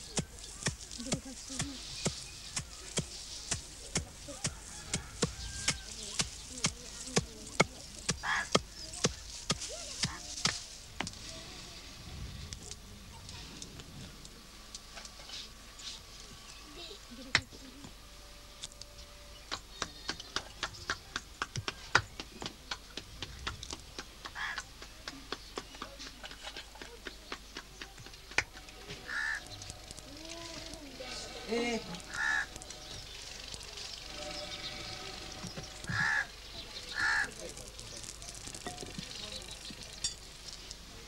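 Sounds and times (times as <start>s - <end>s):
sticks thudding on crop pods: 0.0s - 11.3s, 27.6s - 34.1s, 35.4s - 36.3s.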